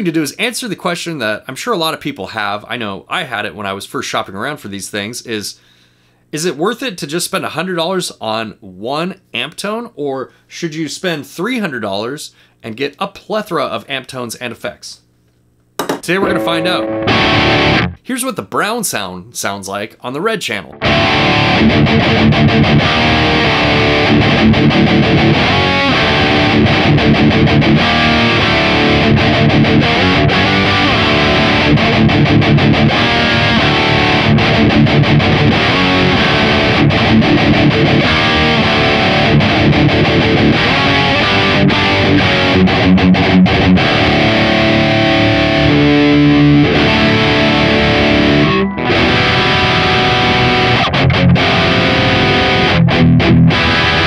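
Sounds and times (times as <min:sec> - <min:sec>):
distorted electric guitar riffing: 0:16.1 - 0:18.0, 0:20.7 - 0:54.0.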